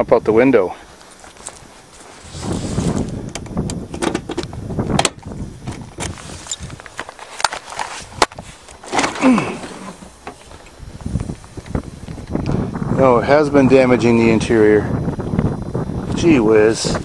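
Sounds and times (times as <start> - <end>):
rustling handling noise: 0.8 - 4.6, 5.2 - 12.3.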